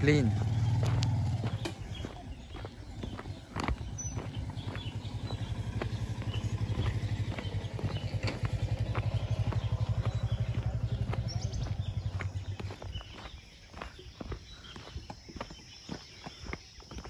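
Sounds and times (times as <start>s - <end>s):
motorcycle engine idling: 0.0s - 16.9s
footsteps on gravel: 0.0s - 17.0s.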